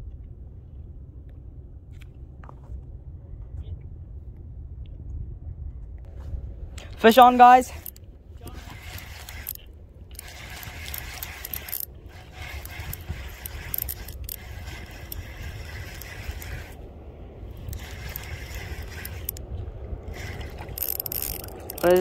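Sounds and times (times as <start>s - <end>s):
wind rumble on microphone: 0.0s - 22.0s
fishing reel gears clicking: 7.1s - 16.8s, 17.5s - 19.4s, 20.1s - 22.0s.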